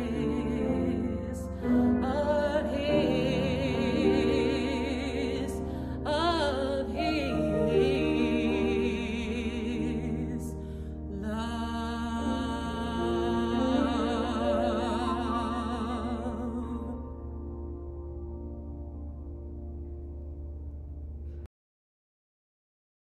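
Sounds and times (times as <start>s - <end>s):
woman singing with vibrato: 0.0s - 17.2s.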